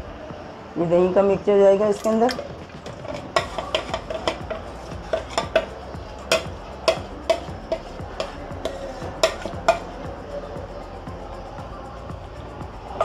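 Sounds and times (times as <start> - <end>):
spoon clinking against ceramic bowl: 3.3 - 9.9.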